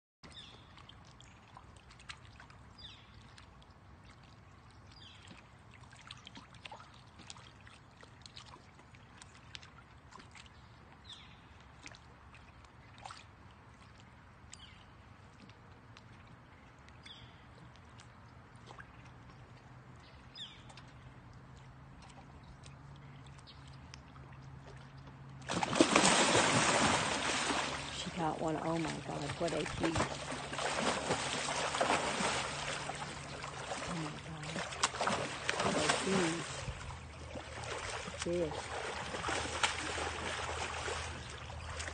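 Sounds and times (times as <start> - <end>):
shallow water lapping: 0.3 - 41.9
dog splashing in water: 25.4 - 41.9.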